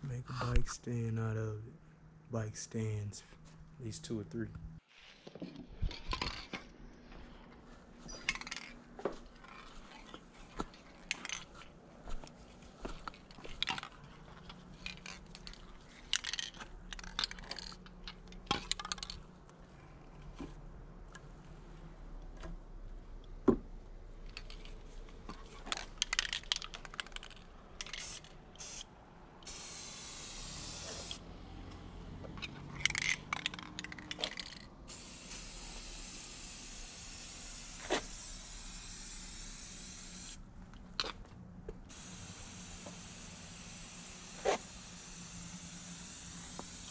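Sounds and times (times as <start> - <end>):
spray paint can hissing: 27.8 - 31.2, 32.8 - 40.4, 41.9 - 46.9.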